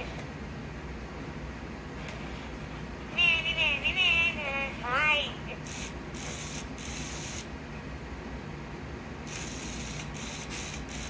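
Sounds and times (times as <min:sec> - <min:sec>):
toy motor gears whirring and clicking: 0:05.6 - 0:07.5, 0:09.3 - 0:11.0.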